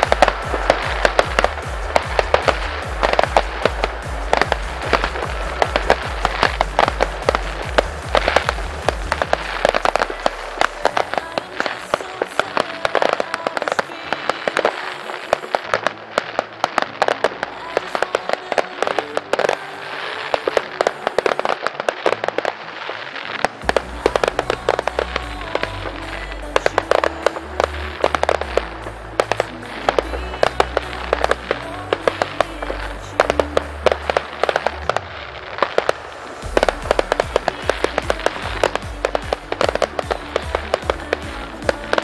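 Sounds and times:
electronic dance music: 0.0s - 42.0s
fireworks bangs and crackles: 0.0s - 42.0s.

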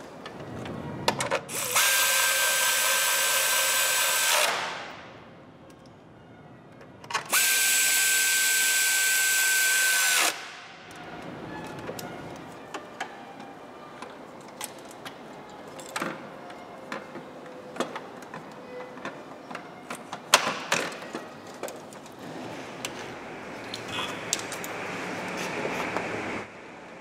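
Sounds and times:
tools and engine parts clicking: 14.0s - 23.0s.

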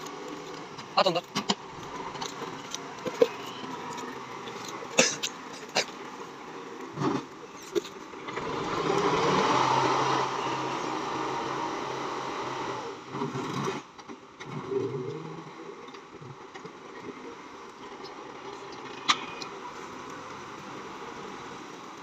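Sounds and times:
tractor engine revving: 0.0s - 14.6s.

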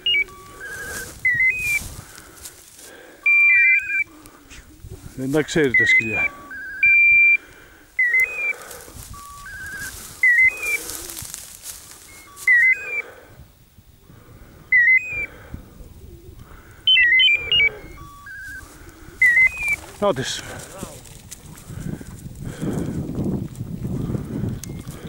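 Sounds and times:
electronic beeper collar chirping: 0.0s - 1.8s, 3.2s - 4.1s, 5.4s - 7.4s, 8.0s - 10.9s, 12.0s - 13.1s, 14.7s - 15.3s, 16.8s - 20.2s.

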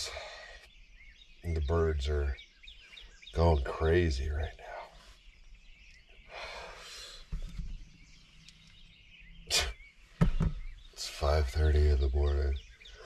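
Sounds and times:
faint birdsong: 0.0s - 13.0s
breathy exhale: 6.3s - 7.4s.

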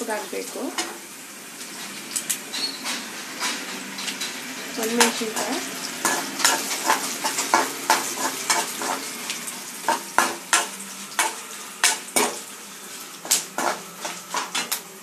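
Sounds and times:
oil sizzling: 0.0s - 15.0s
metal spatula scraping a pan: 1.6s - 14.8s.

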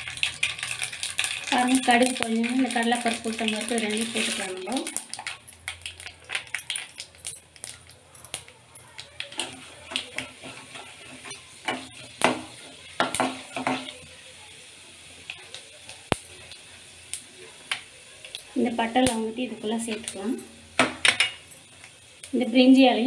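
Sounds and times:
seeds sizzling in hot oil: 0.0s - 23.0s
metal spatula scraping pan: 9.3s - 13.9s.

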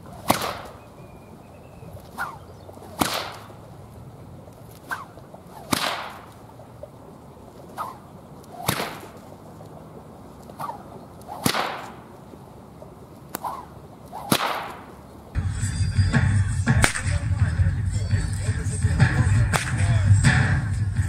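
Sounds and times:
whip cracking: 0.0s - 0.8s, 2.0s - 3.7s, 4.7s - 6.5s, 7.7s - 9.3s, 10.4s - 12.2s, 13.3s - 15.0s, 16.7s - 17.2s, 19.5s - 20.0s
whip swinging swish: 0.0s - 0.8s, 2.0s - 3.7s, 4.7s - 6.4s, 7.7s - 9.3s, 10.4s - 12.1s, 13.3s - 15.0s, 16.8s - 17.2s, 19.5s - 19.8s
steady low rumble: 0.0s - 14.1s, 14.8s - 21.0s.

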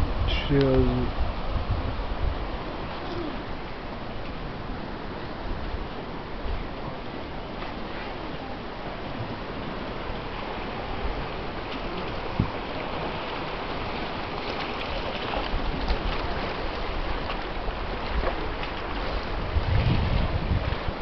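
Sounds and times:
waves washing onto shore: 0.0s - 21.0s
wind buffeting microphone: 0.0s - 21.0s.

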